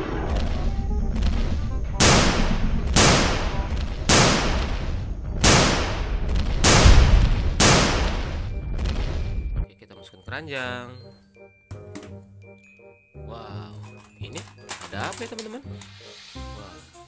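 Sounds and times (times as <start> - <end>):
low rumble: 0.0 - 9.6
gunshots cracking: 2.0 - 9.3.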